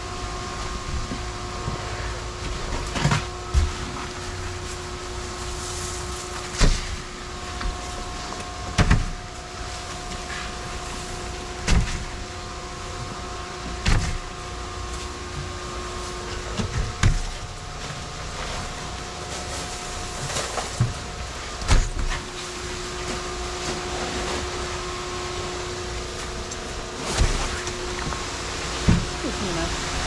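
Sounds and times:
boat machinery humming: 0.0s - 30.0s.

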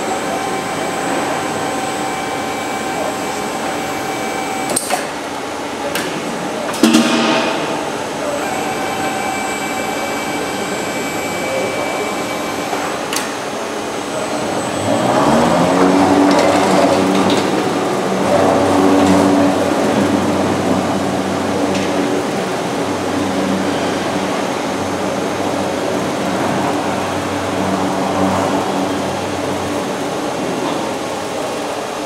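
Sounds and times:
electric drive rising whine: 0.0s - 5.4s, 7.1s - 31.5s
steady machine hum: 0.0s - 32.0s.

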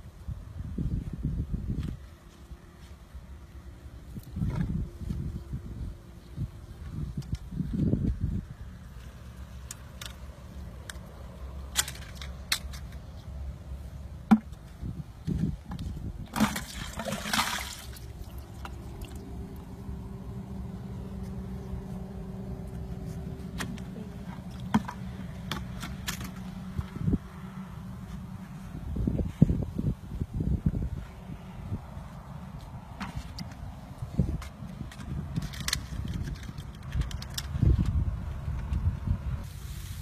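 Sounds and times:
water splashing and sloshing: 15.6s - 19.7s, 23.7s - 26.3s.

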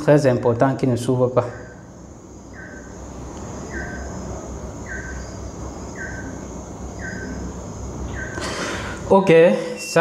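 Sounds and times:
faint high whine: 0.0s - 10.0s
low hum: 1.4s - 9.1s.

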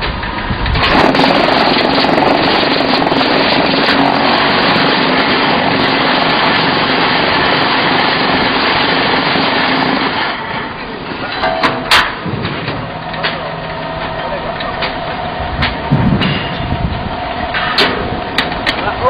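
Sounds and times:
machine buzzing rattle: 0.2s - 19.0s
sharp metal clank: 11.3s - 16.8s.

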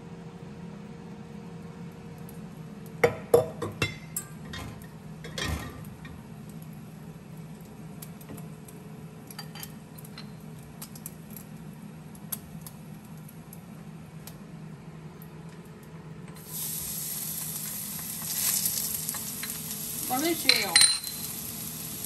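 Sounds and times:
utensils clattering: 18.3s - 21.3s
kitchen utensils clinking: 19.1s - 21.3s.

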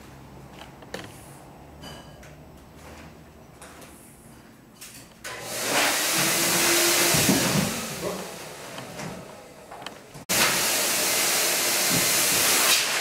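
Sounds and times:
electric blower rushing air: 5.3s - 9.1s, 10.3s - 13.0s.

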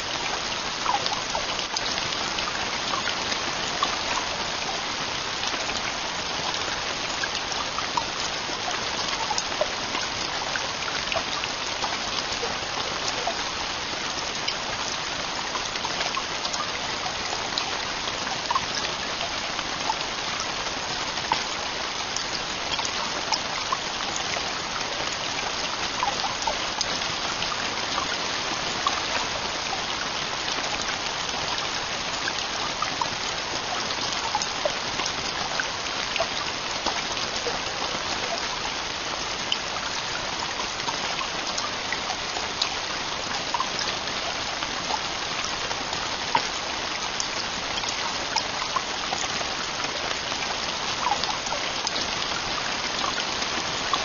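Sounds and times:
heavy rain on a tent roof: 0.0s - 54.0s.

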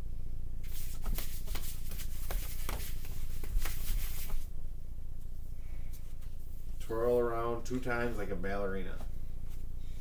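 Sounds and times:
rustling and soft taps: 0.6s - 4.5s.

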